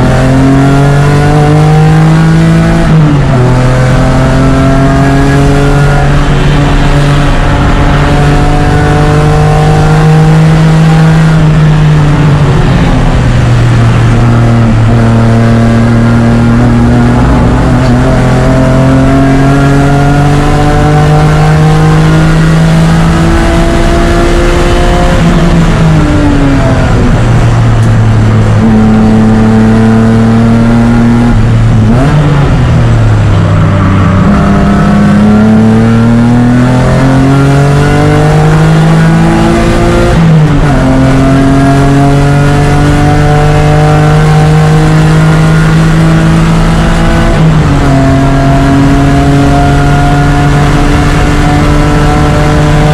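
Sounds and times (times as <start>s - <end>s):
race car engine at full throttle: 0.0s - 52.9s.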